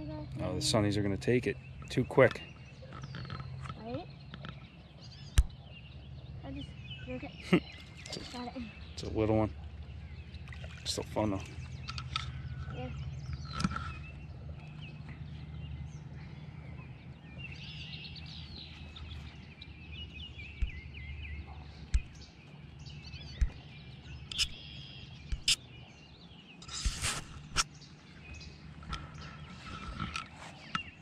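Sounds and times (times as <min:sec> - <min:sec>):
birds chirping and singing: 0:00.0 - 0:31.0
low steady hum: 0:00.0 - 0:31.0
sharp clicks and knocks: 0:23.3 - 0:23.6.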